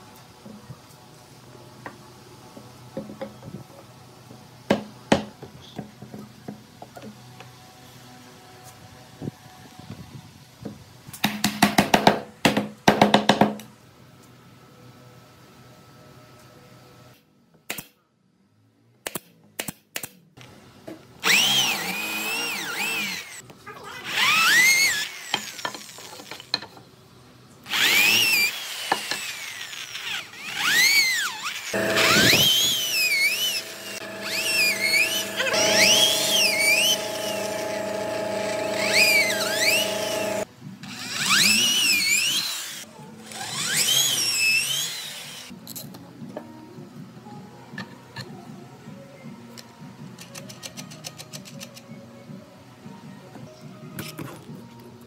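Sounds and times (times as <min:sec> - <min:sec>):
electric drill boring into wood: 0:21.2 - 0:23.4, 0:24.0 - 0:26.2, 0:27.7 - 0:45.5.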